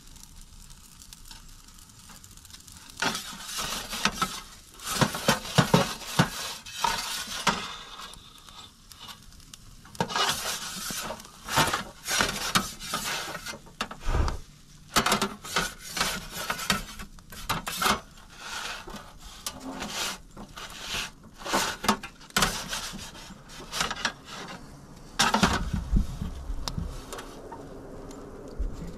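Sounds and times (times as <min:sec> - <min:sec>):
metal peel scraping oven floor: 0:02.9 - 0:09.2, 0:09.9 - 0:26.1.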